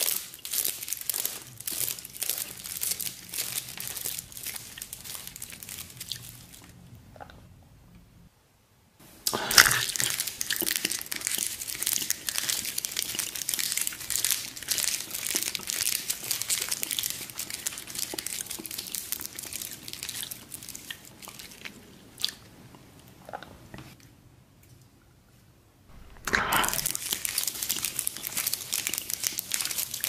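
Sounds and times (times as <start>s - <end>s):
basket strands crackling and crunching: 0.0s - 6.7s, 9.8s - 21.5s, 25.9s - 30.0s.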